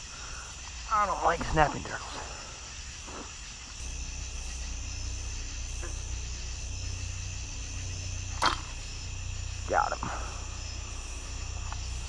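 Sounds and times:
crickets chirping: 0.0s - 12.0s
low rumble: 3.8s - 12.0s.

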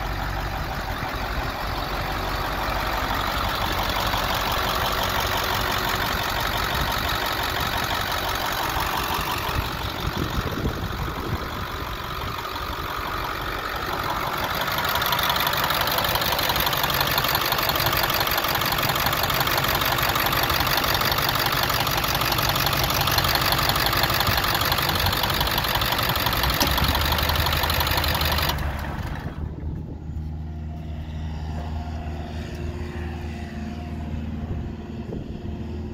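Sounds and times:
diesel engine idling: 0.0s - 35.9s.

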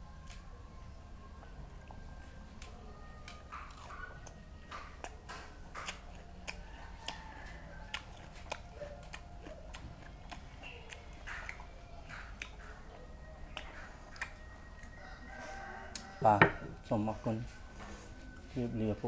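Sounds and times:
low steady hum: 0.0s - 19.0s
man chewing with wet smacking: 0.1s - 15.3s.

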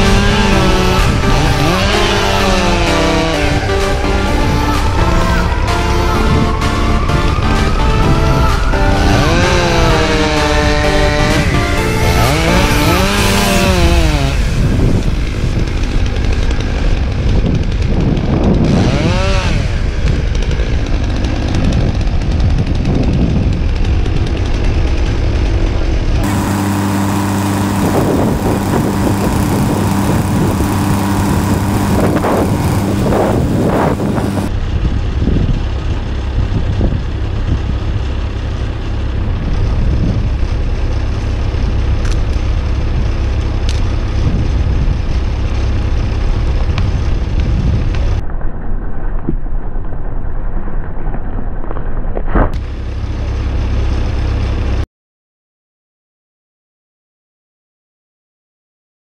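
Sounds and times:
chainsaw cutting wood: 0.0s - 34.5s, 39.4s - 48.2s.

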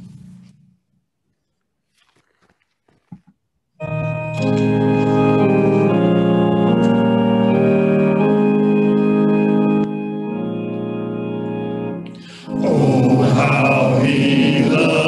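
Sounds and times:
organ playing hymn chords: 3.8s - 15.0s.

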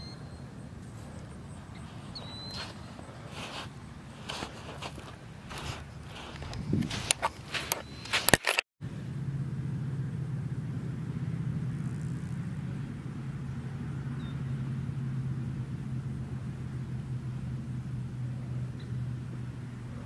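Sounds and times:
footsteps crunching on sand: 0.8s - 8.6s
steady low drone: 8.8s - 20.0s.

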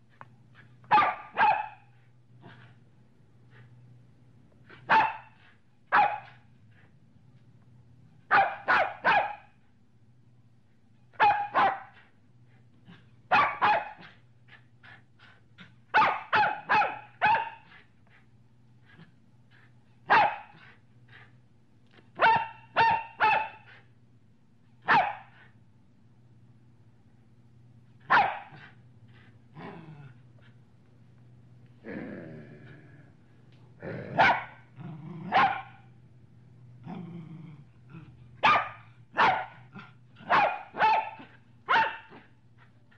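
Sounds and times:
dog barking: 0.9s - 1.9s, 4.9s - 6.4s, 8.3s - 9.6s, 11.2s - 12.0s, 13.3s - 14.1s, 15.9s - 17.7s, 20.1s - 20.6s, 22.2s - 23.7s, 24.8s - 25.3s, 28.1s - 28.7s, 34.2s - 34.6s, 35.3s - 35.8s, 38.4s - 42.2s.

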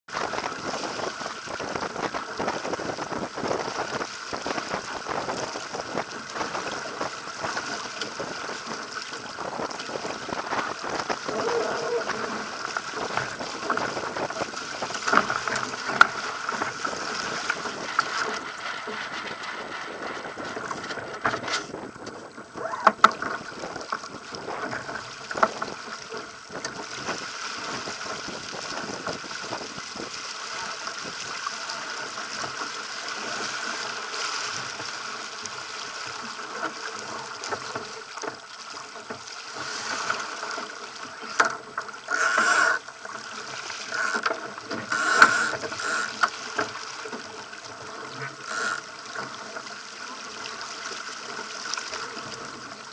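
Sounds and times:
wind noise: 0.1s - 25.8s, 26.5s - 30.2s
hull rushing through choppy water: 0.1s - 52.9s.

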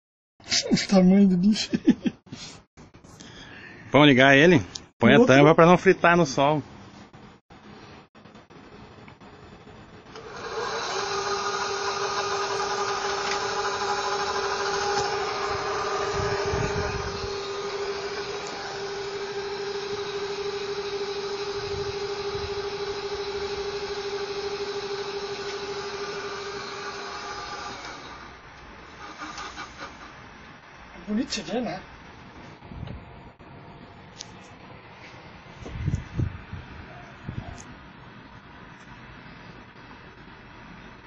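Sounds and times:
electric motor whine: 10.1s - 30.1s.

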